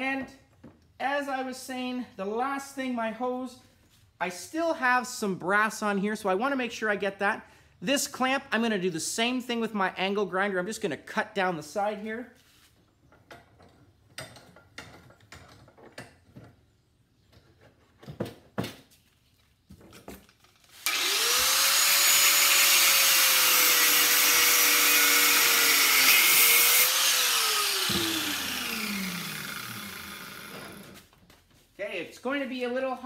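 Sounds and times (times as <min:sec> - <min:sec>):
angle grinder cutting metal: 0:20.8 - 0:31.0.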